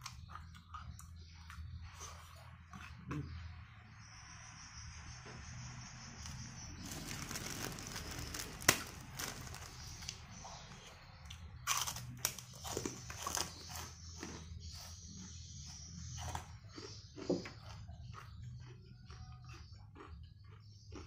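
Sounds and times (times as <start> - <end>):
plastic bag crinkling: 6.8 - 10.2.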